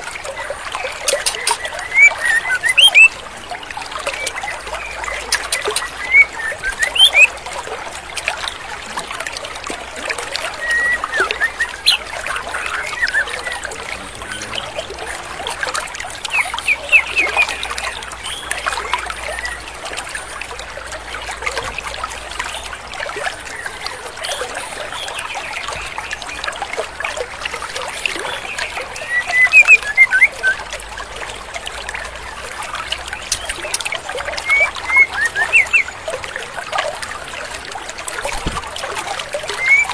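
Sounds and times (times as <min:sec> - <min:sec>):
stream flowing: 0:00.0 - 0:39.9
bird chirping: 0:01.1 - 0:03.1, 0:04.2 - 0:07.3, 0:10.6 - 0:15.3, 0:16.2 - 0:18.5, 0:34.4 - 0:35.9.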